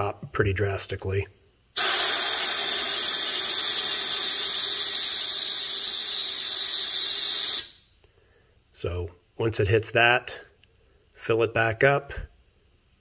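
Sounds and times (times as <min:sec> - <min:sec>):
vacuum bleeder hissing: 0:01.8 - 0:08.0.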